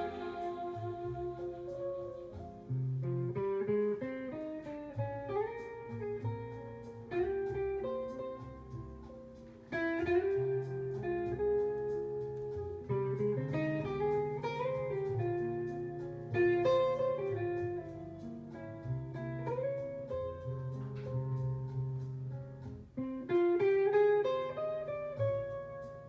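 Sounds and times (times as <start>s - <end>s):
instrumental music from vinyl record: 0.0s - 26.0s.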